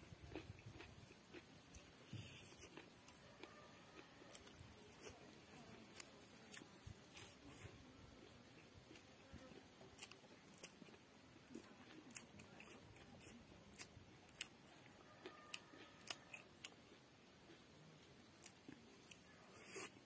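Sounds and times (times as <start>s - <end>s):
chewing clicks and smacks: 0.2s - 5.1s, 8.2s - 17.6s.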